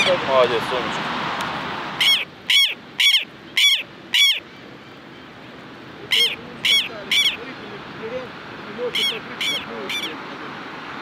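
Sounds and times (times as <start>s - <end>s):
lapwing calling: 2.0s - 7.8s, 8.8s - 10.3s.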